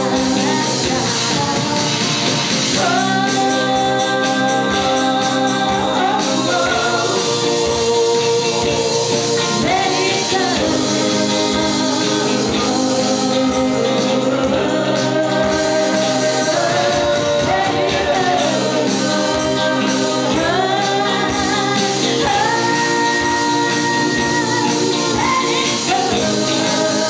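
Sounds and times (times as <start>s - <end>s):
guitars: 0.0s - 27.0s
keyboard: 0.0s - 27.0s
person singing: 0.0s - 27.0s.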